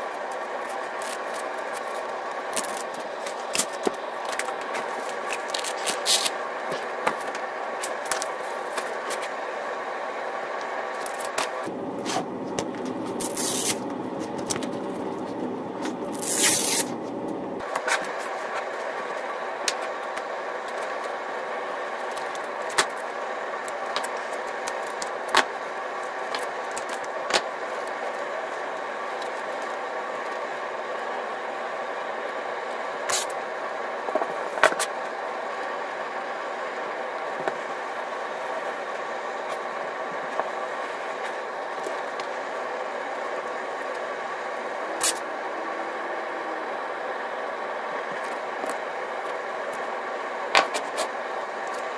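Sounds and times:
steady background hum: 0.0 - 51.9
hook-and-loop strips ripping: 0.6 - 6.4, 13.2 - 13.8, 16.0 - 17.0.

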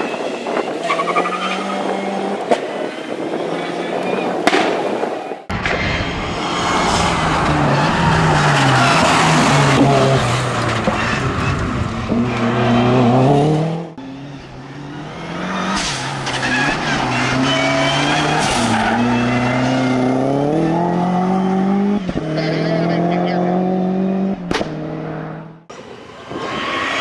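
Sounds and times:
rally car engine revving: 5.5 - 27.0.

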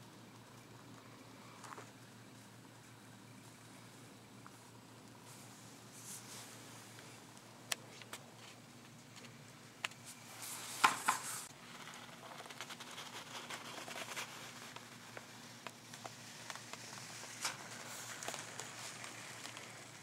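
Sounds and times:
paper rustling: 10.0 - 20.0.

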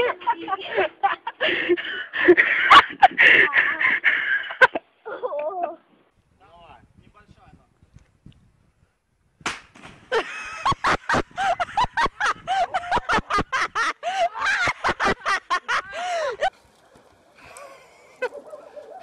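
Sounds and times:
person laughing hard: 10.1 - 16.5.

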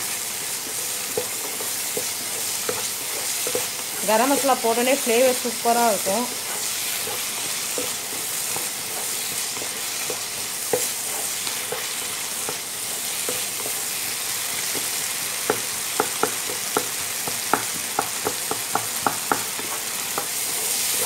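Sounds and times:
meat and onions sizzling in pan: 0.0 - 21.0
spatula knocking against pan: 9.4 - 11.0, 14.6 - 20.4.

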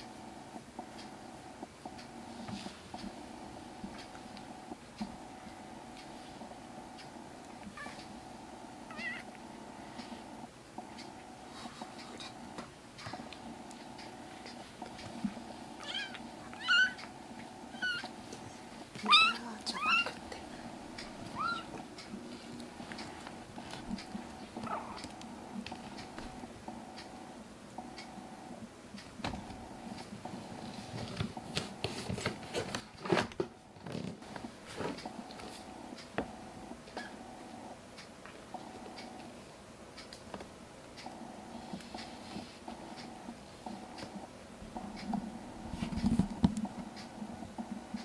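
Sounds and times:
faint steady hum: 0.0 - 48.0
kitten meowing: 15.8 - 17.0, 17.8 - 18.1, 19.1 - 20.2, 21.3 - 21.7
rustling and scraping handling sounds: 30.3 - 35.8.

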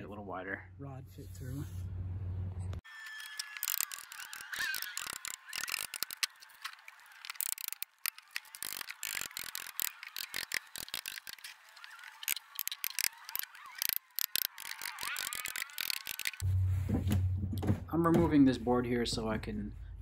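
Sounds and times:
ratchet wrench clicking: 3.2 - 6.3, 7.2 - 16.4.

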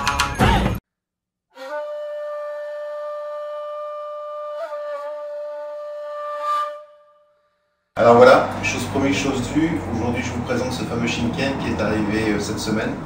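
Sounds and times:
wind instrument long held note: 1.6 - 7.7.

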